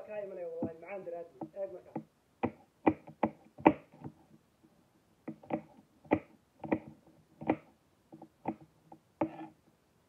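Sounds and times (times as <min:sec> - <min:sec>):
knife chopping on cutting board: 0:05.3 - 0:07.7.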